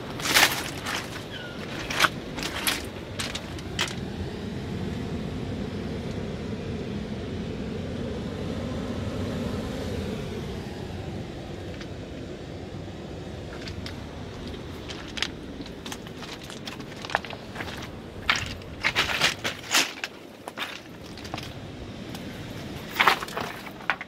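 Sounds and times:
surf on rocky shore: 0:00.0 - 0:05.6, 0:10.2 - 0:24.0
wind: 0:00.0 - 0:24.0
stony clacks: 0:00.2 - 0:04.0, 0:13.6 - 0:22.3.

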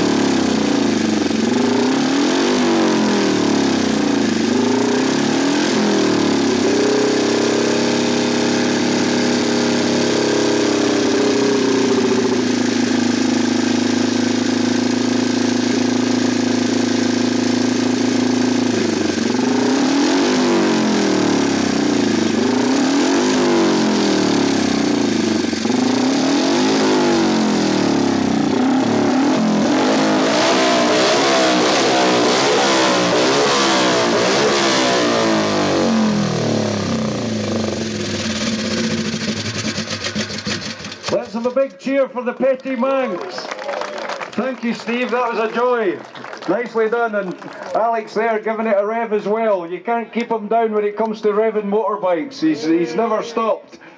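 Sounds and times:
racing motorcycle engine revving: 0:00.0 - 0:41.6.

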